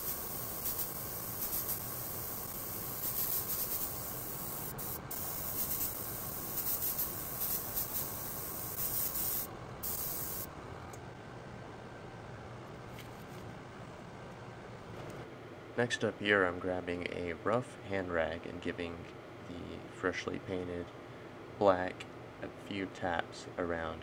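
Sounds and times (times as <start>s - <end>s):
airbrush spraying hiss: 0.0s - 10.5s.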